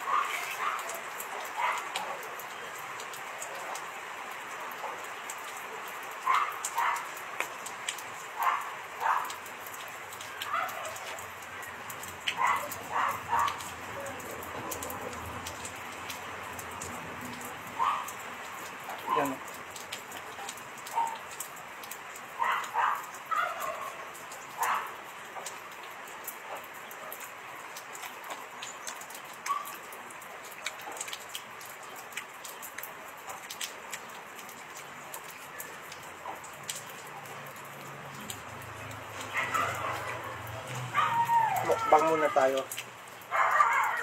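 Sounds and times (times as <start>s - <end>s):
distant dog barking: 0.0s - 2.8s, 4.7s - 7.2s, 8.2s - 16.2s, 17.4s - 19.5s, 20.3s - 21.4s, 22.4s - 25.1s, 29.4s - 29.9s, 35.5s - 42.6s, 43.2s - 44.0s
steady hiss like rain: 0.0s - 44.0s.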